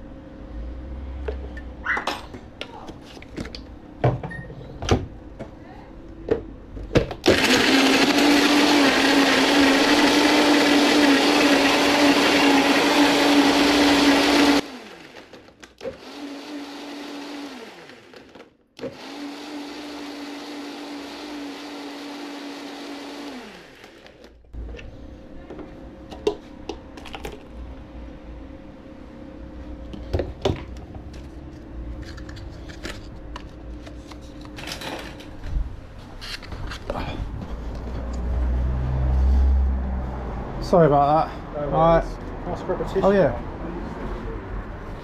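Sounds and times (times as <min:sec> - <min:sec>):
blender crushing ice: 0:07.1 - 0:24.4.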